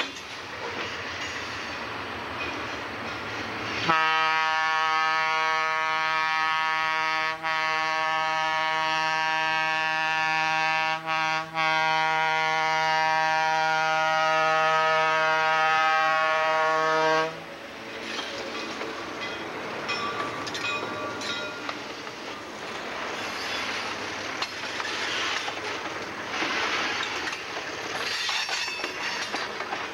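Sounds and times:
train wheels clicking: 0.0s - 3.9s, 17.7s - 29.9s
locomotive horn blast: 3.8s - 17.5s.

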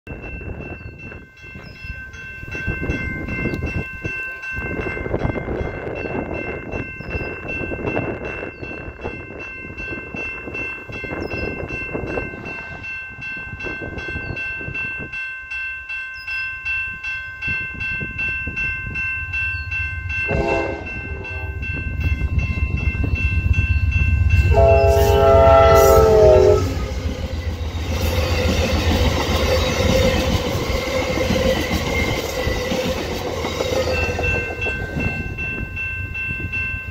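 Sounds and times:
locomotive engine and wheels rumbling: 0.1s - 36.9s
train horn: 20.2s - 21.9s, 24.4s - 27.0s.

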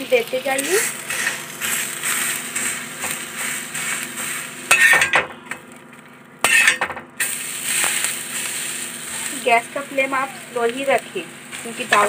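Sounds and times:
bread sizzling in oil: 0.0s - 12.0s
metal spatula scraping a pan: 1.1s - 5.2s, 6.4s - 6.9s.

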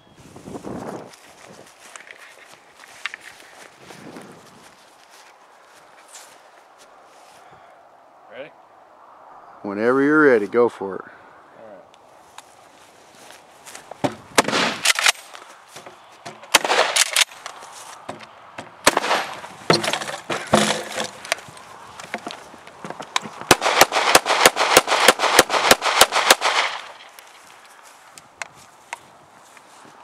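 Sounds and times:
shotgun blasts: 14.3s - 15.2s, 16.4s - 17.3s, 18.8s - 19.8s, 23.5s - 27.0s
rapid pistol shots: 14.4s - 15.2s, 16.5s - 17.2s, 18.8s - 19.4s, 23.5s - 27.0s.

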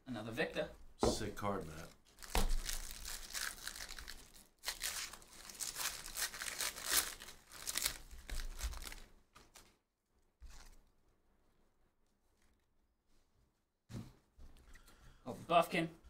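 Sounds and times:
foil wrapper tearing and crinkling: 2.1s - 9.6s.

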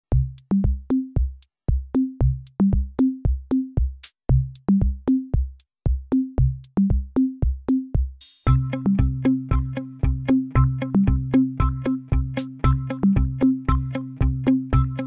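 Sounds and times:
electronic music with drum machine: 0.1s - 15.0s.

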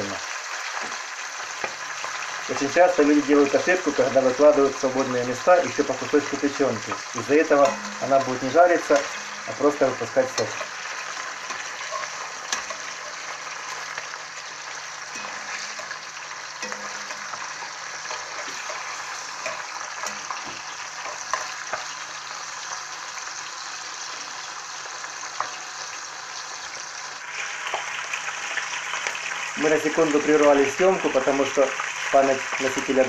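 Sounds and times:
liver sizzling in hot oil: 0.0s - 33.0s
metal spatula clicking on pan: 11.4s - 13.0s, 16.6s - 21.9s.

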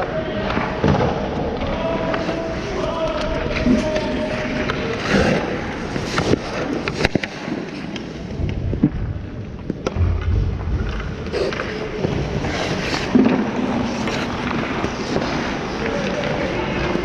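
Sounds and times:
ice skates scraping: 3.5s - 8.4s, 11.4s - 17.0s.

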